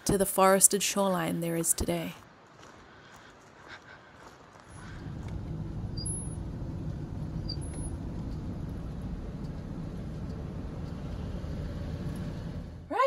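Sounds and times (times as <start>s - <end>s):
vehicle engine rumble: 3.2s - 13.0s.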